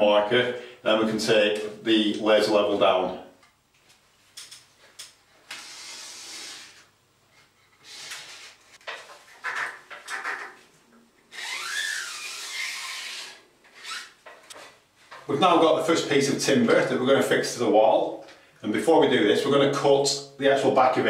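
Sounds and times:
tools scraping against a wall: 0:05.4 - 0:10.6.

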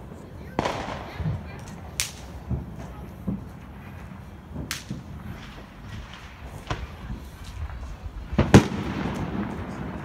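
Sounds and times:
firework cracks: 0:00.0 - 0:10.0
low firework thuds: 0:00.5 - 0:10.0.

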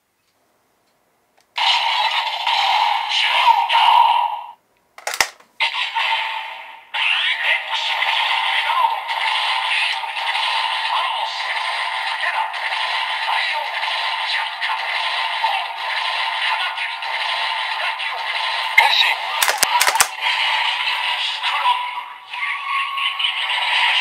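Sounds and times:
plastic clicks: 0:05.0 - 0:05.5, 0:19.4 - 0:20.2
synthetic voice: 0:05.7 - 0:09.0, 0:21.1 - 0:23.8.

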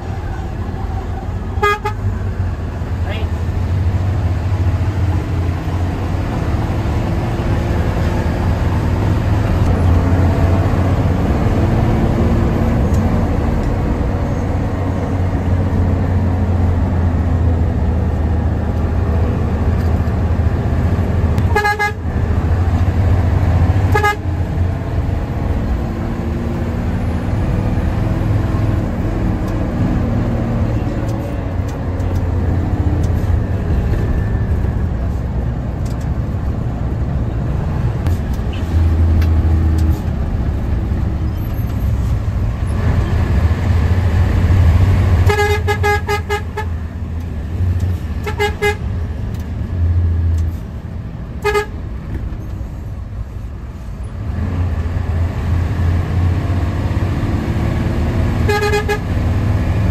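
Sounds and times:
bus engine droning: 0:00.0 - 0:59.9
horn toots: 0:01.6 - 0:02.0, 0:21.4 - 0:22.0, 0:23.8 - 0:24.3, 0:45.2 - 0:46.7, 0:48.2 - 0:48.8, 0:51.4 - 0:51.8, 0:58.4 - 0:59.1.

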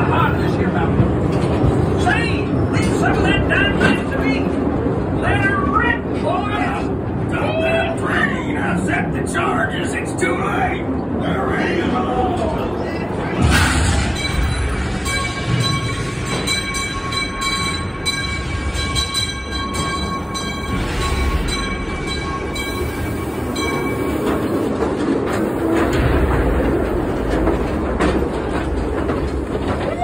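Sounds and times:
wheels rumbling and rattling on rail: 0:00.0 - 0:30.0
high ringing tones: 0:14.0 - 0:24.6.

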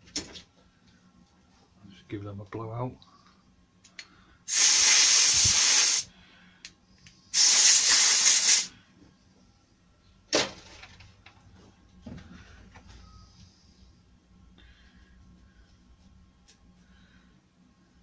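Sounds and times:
compressed air blow gun blasting: 0:04.5 - 0:06.1, 0:07.3 - 0:08.7.

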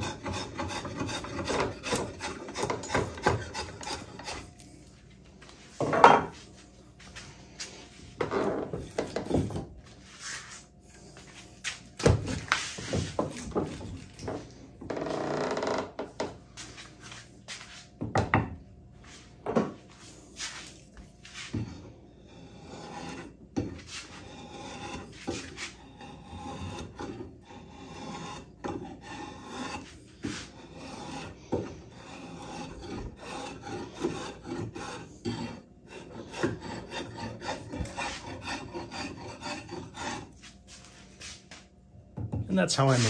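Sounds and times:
drawknife scraping wood: 0:00.0 - 0:04.7, 0:08.3 - 0:10.7, 0:11.7 - 0:14.5, 0:21.3 - 0:41.4.

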